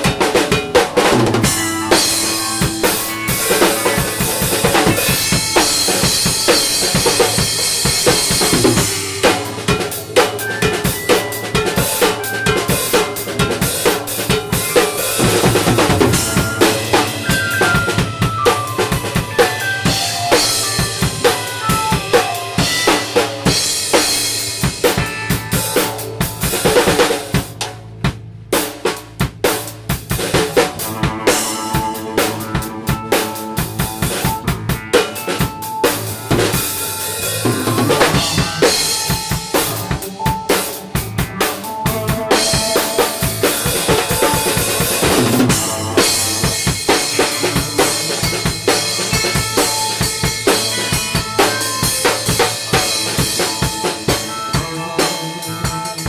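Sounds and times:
electric guitar: 0.0 - 27.6, 30.0 - 56.0
drum kit played hard: 0.0 - 56.0
keyboard: 0.0 - 56.0
descending runs of notes: 1.1 - 24.5, 36.1 - 48.3.

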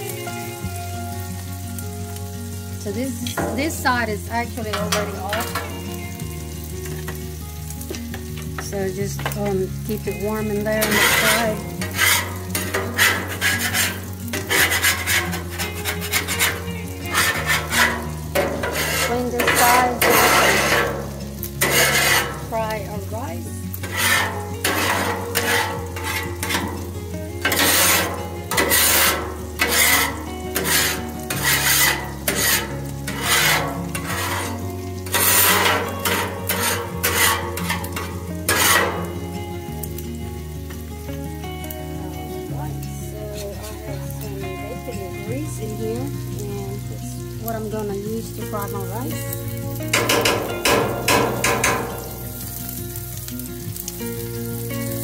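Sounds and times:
food sizzling: 0.0 - 55.0
quiet background music: 0.0 - 55.0
metal spatula scraping griddle: 3.0 - 7.2, 9.1 - 40.8, 48.0 - 55.0.

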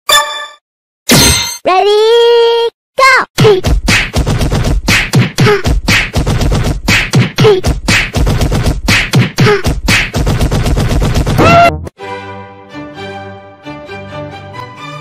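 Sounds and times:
beatbox percussive hits: 3.4 - 11.7.

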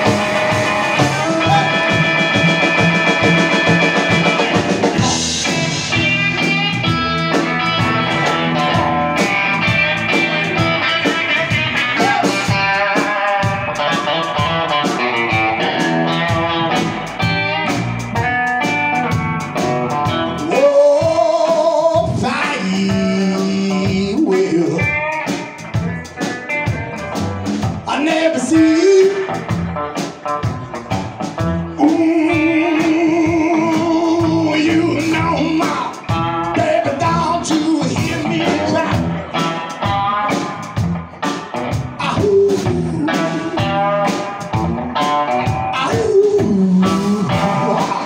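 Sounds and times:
double bass: 0.0 - 12.8, 14.4 - 21.3, 28.6 - 48.0
person singing: 0.0 - 17.7, 20.0 - 30.8, 31.4 - 40.5, 41.8 - 48.0
drum kit: 0.0 - 48.0
electric guitar: 0.0 - 48.0.

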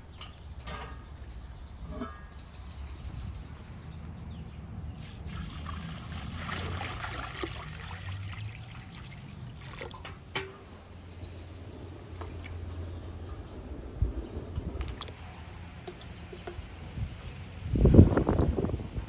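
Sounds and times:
water pouring into metal cauldron: 5.0 - 10.5.

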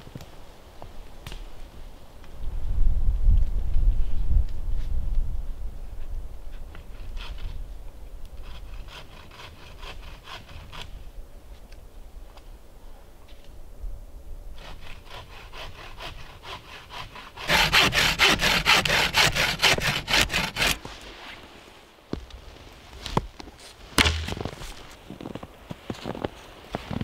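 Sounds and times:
bow saw cutting wood: 8.4 - 11.0, 14.6 - 21.0
sharp knocks: 24.0 - 24.6.

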